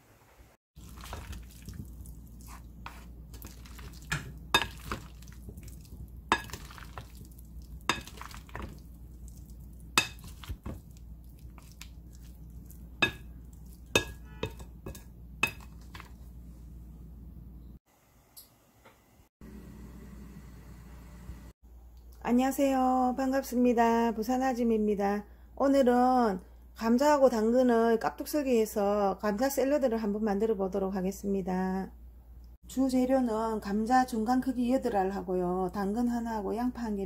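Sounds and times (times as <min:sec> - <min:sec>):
spatula stirring potato salad: 0:00.8 - 0:16.5
spatula clinking against glass: 0:06.3 - 0:06.7, 0:07.9 - 0:08.7, 0:10.0 - 0:10.8, 0:13.0 - 0:16.1.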